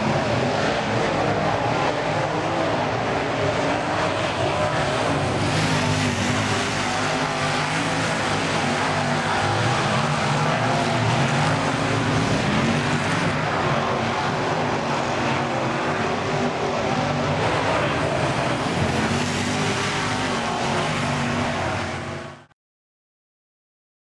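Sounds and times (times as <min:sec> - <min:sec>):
race car engines: 0:00.0 - 0:22.5.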